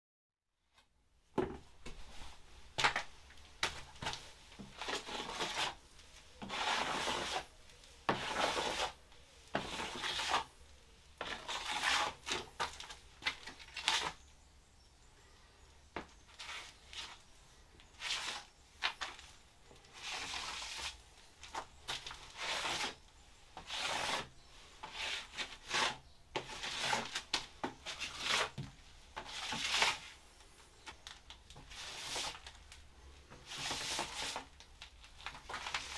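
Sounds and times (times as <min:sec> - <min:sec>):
hand tool scraping surface: 0:03.7 - 0:10.5, 0:11.2 - 0:14.2, 0:16.3 - 0:17.2, 0:17.9 - 0:19.2, 0:19.9 - 0:23.0, 0:23.6 - 0:30.2, 0:31.6 - 0:32.6, 0:33.3 - 0:34.5, 0:35.2 - 0:35.9.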